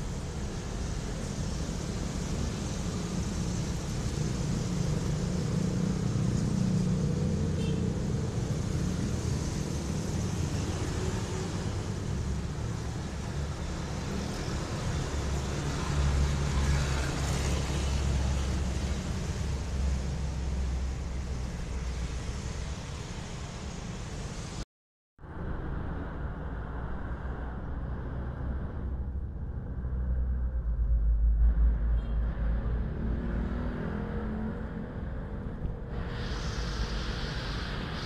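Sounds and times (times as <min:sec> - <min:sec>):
vehicle engine rumble: 0:25.2 - 0:38.0.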